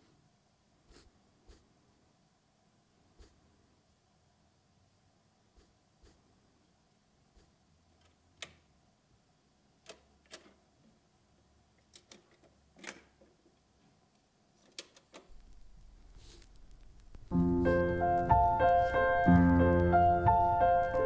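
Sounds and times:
faint clicks and knocks: 11.8s - 17.3s.

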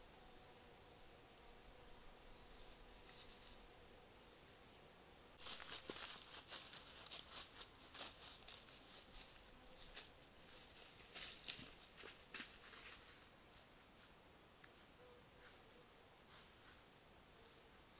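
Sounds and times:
hooves crunching dry leaves: 5.4s - 13.3s.

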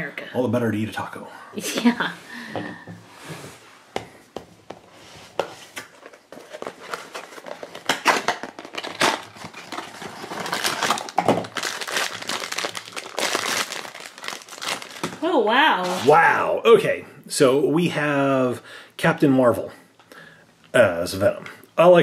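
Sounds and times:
foil bag crinkling and tearing: 6.5s - 15.2s.

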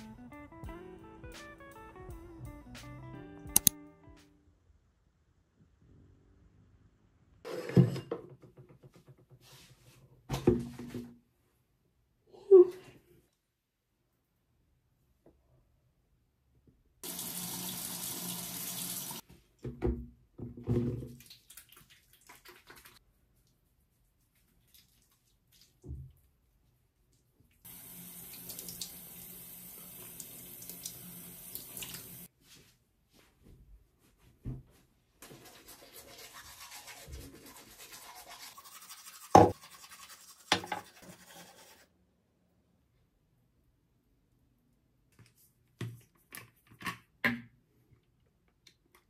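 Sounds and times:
tap water running: 17.0s - 19.2s, 27.7s - 32.3s, 35.2s - 41.8s
soapy hands rubbing: 21.2s - 25.8s, 35.2s - 41.8s
wet squelches: 21.2s - 26.3s
teeth being brushed: 35.2s - 41.8s.

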